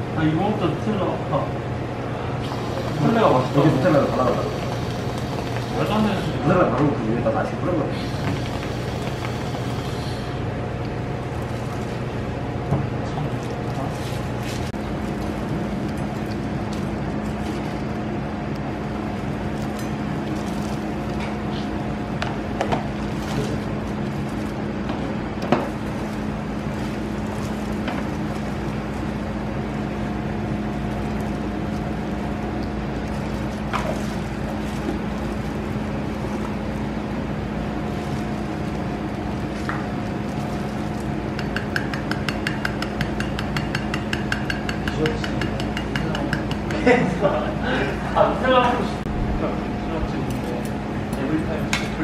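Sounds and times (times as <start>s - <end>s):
machine hum: 0.0s - 52.0s
sieve tapping: 41.3s - 46.8s.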